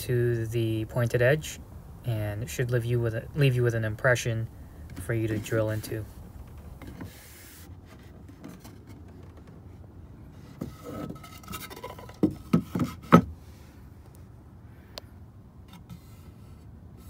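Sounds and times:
wood scraping on metal: 4.9 - 13.3.

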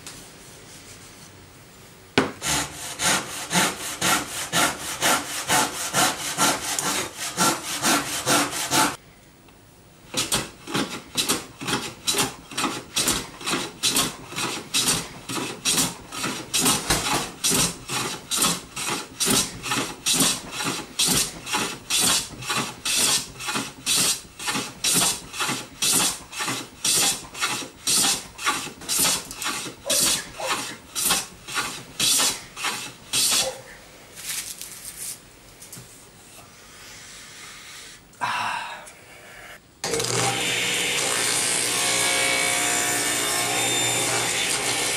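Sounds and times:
handsaw cutting wood: 2.4 - 9.0, 10.1 - 33.6, 39.8 - 44.9.

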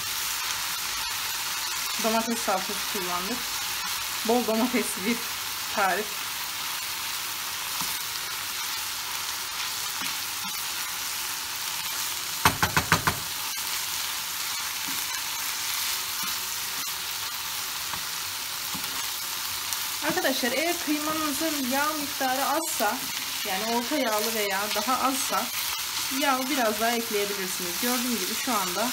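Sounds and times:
meat sizzling in a frying pan: 0.0 - 28.9
loud knocks: 12.4 - 13.3.

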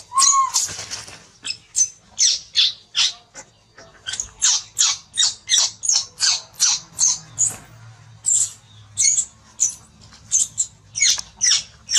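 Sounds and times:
baby monkey squealing: 0.0 - 0.7, 4.1 - 7.2.

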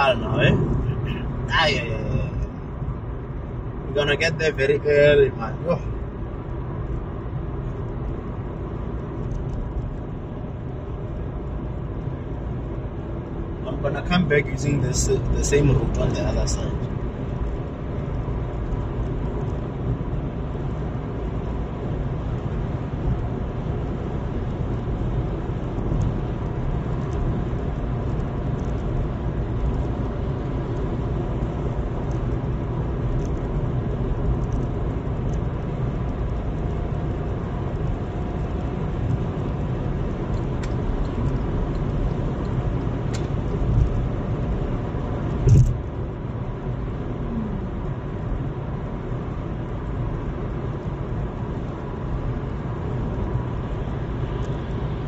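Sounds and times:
car road and engine noise: 0.0 - 55.0
thump: 45.4 - 45.8.

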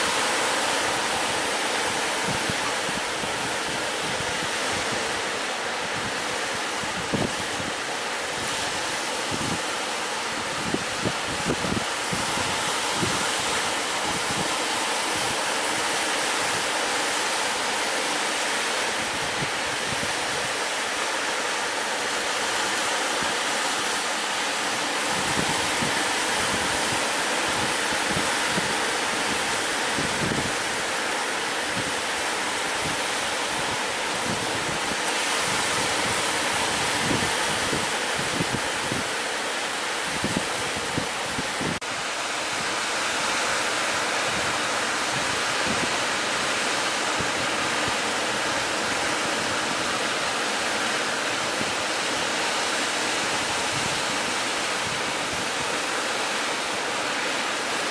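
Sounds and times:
wind buffeting microphone: 0.0 - 16.8, 24.5 - 56.8
sea surf washing onto beach: 0.0 - 57.9.

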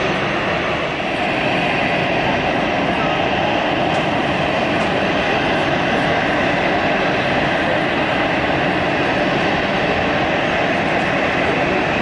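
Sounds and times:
jet engines rumbling at taxi power: 0.0 - 12.0.

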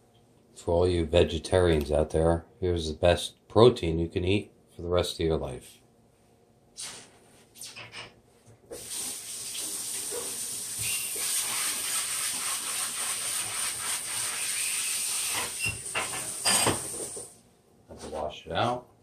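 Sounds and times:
eggs sizzling in a pan: 14.2 - 17.4.

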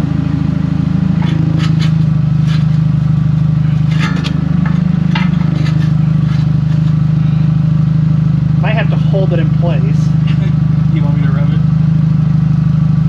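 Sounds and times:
car engine idling: 0.0 - 13.0
metallic knocks and scrapes: 1.1 - 3.0, 3.6 - 7.4.

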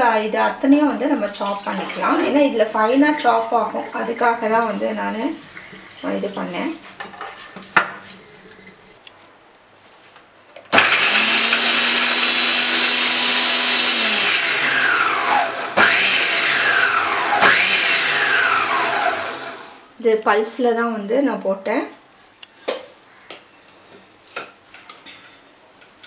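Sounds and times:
food processor motor chopping: 10.7 - 19.8.

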